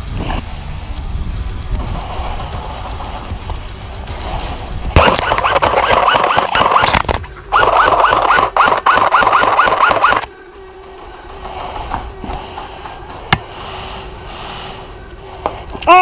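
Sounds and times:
airsoft rifle shots: 4.1s - 10.3s
gun motor whine: 5.0s - 12.5s.

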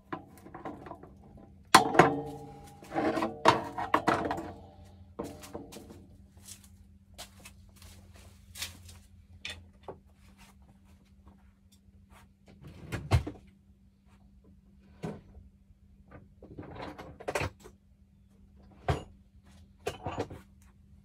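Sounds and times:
tools knocking: 1.8s - 5.8s.

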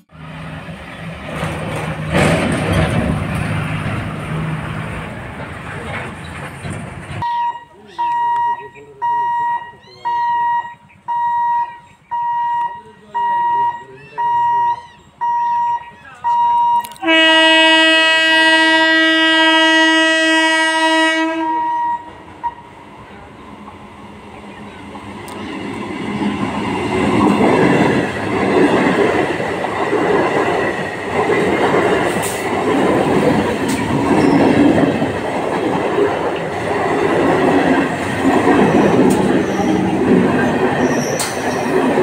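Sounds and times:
diesel truck engine driving: 0.1s - 7.2s
train horn blast: 16.9s - 22.6s.

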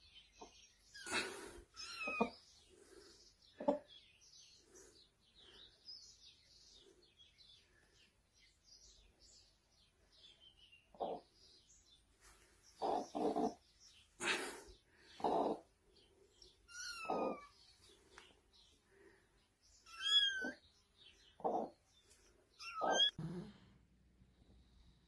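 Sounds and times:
kittens mewing: 16.7s - 17.6s, 19.9s - 20.6s, 22.6s - 23.5s.

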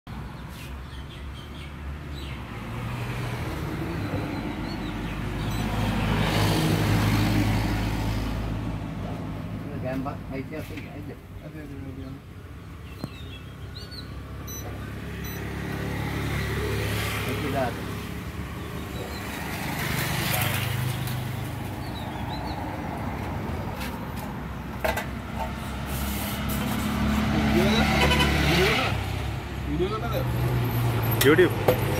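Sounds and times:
vehicle engine approaching: 14.1s - 31.9s.

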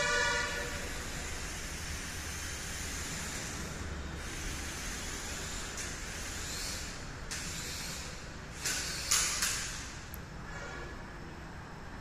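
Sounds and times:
toy drone propellers hissing: 0.6s - 10.0s.

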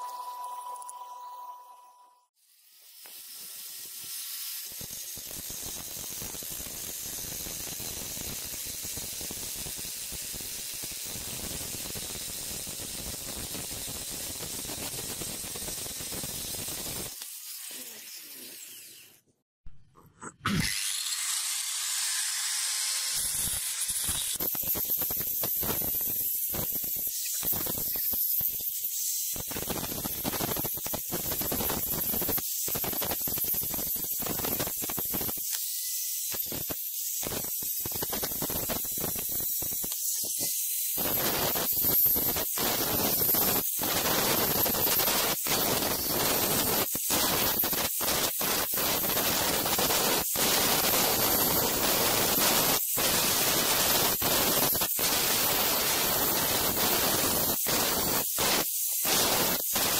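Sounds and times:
angle grinder grinding metal: 14.6s - 19.2s, 20.3s - 46.8s.

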